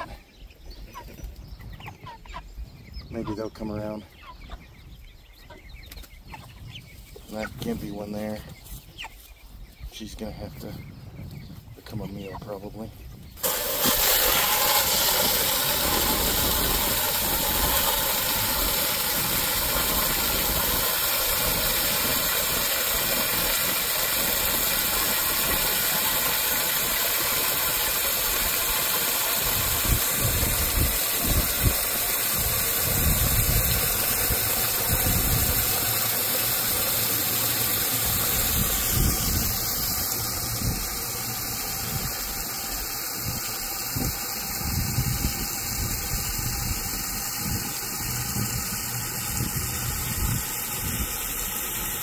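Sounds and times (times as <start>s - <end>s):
steady hiss: 13.4s - 52.0s.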